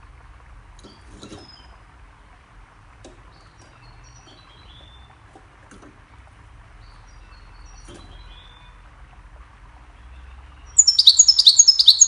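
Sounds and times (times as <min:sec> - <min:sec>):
low background hiss: 0:00.0 - 0:12.0
bird chirping: 0:03.3 - 0:05.1, 0:06.8 - 0:08.8, 0:10.0 - 0:12.0.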